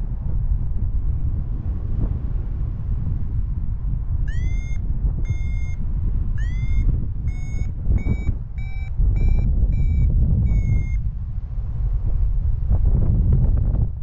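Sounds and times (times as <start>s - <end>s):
wind noise on microphone: 0.0s - 14.0s
variometer short beeps: 4.3s - 11.0s.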